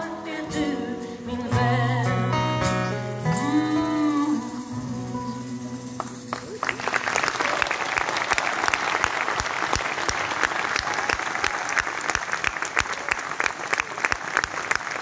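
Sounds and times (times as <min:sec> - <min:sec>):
audience applauding: 0:06.0 - 0:15.0
close hands clapping evenly: 0:06.0 - 0:15.0.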